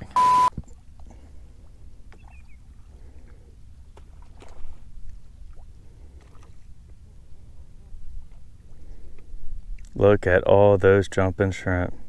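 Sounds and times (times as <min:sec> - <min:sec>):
water lapping against boat hull: 0:00.6 - 0:10.0.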